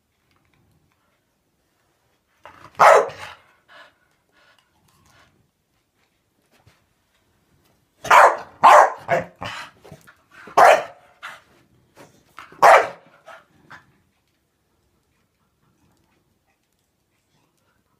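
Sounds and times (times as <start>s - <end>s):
dog barking excitedly: 2.5s - 3.5s, 8.0s - 9.7s, 10.5s - 11.3s, 12.4s - 13.5s.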